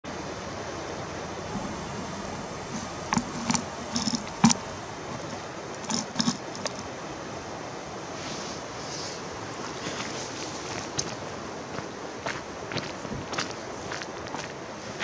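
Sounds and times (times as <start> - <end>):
river flowing: 0.1 - 13.0
wind on microphone: 1.4 - 6.8
short clicks and crunches: 1.6 - 6.9.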